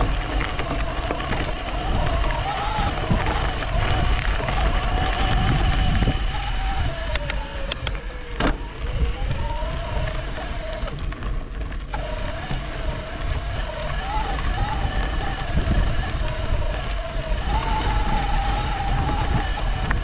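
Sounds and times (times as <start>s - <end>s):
e-bike motor whining: 0.0s - 20.0s
low rumble of riding: 0.0s - 20.0s
sharp clicks: 4.0s - 8.2s.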